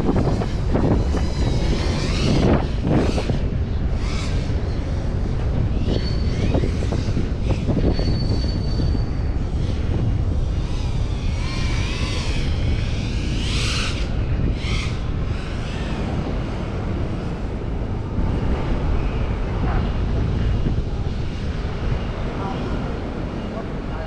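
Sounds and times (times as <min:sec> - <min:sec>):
drone propellers whining: 0:00.0 - 0:24.0
wind noise on microphone: 0:00.0 - 0:24.0.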